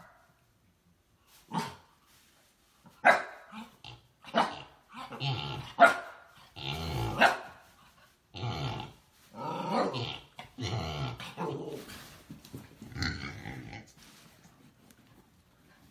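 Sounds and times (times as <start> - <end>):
dog growling and barking: 3.5 - 7.5, 8.4 - 11.9.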